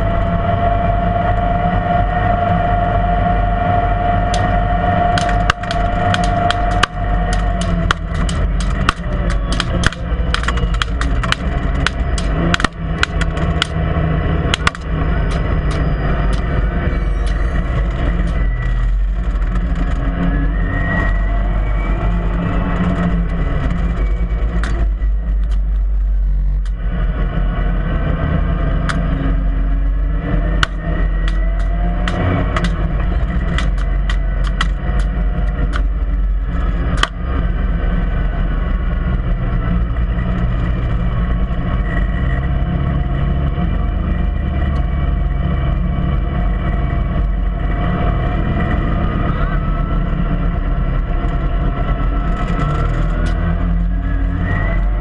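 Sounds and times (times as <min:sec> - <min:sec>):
utility vehicle engine droning: 0:00.0 - 0:55.0
sharp clicks or rattles: 0:04.3 - 0:16.6, 0:30.5 - 0:36.2, 0:52.2 - 0:53.5.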